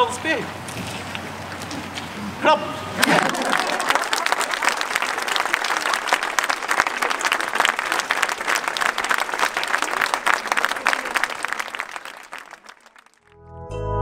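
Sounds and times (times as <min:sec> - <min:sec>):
audience applauding: 0:03.0 - 0:13.4.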